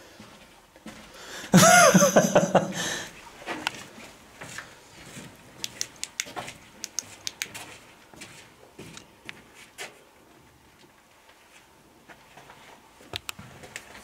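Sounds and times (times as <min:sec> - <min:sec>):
footsteps scuffing on dirt floor: 0:03.4 - 0:05.7, 0:06.3 - 0:10.0.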